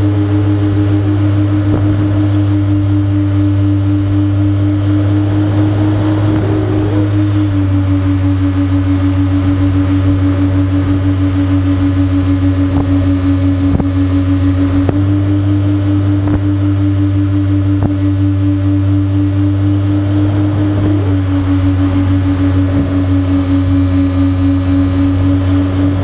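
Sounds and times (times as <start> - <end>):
electric motors and propellers droning: 0.0 - 26.0.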